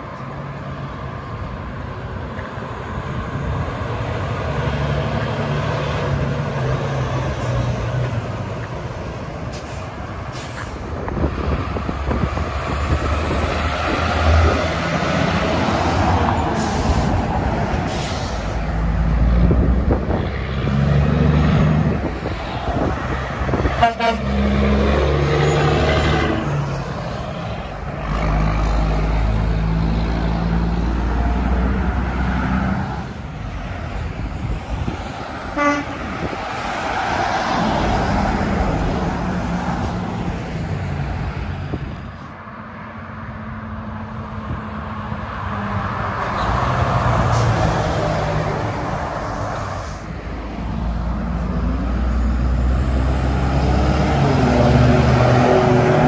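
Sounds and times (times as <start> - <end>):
diesel trucks passing: 0.0 - 56.0
truck horn: 23.6 - 24.8, 35.5 - 36.2.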